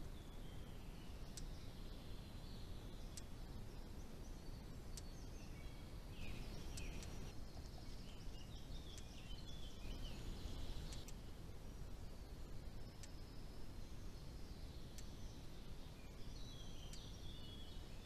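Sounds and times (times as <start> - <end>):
low background rumble: 0.0 - 18.0
small birds chirping: 0.0 - 18.0
faint clicks: 1.3 - 1.6, 3.1 - 3.4, 4.9 - 5.1, 6.2 - 8.3, 8.9 - 9.2, 10.8 - 11.2, 12.9 - 13.2, 14.9 - 15.2, 16.9 - 17.1.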